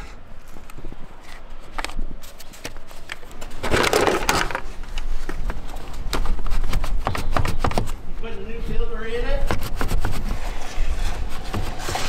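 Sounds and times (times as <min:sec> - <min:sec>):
handling clicks and knocks: 0:00.6 - 0:08.0
air filter scraping out of housing: 0:09.9 - 0:12.0.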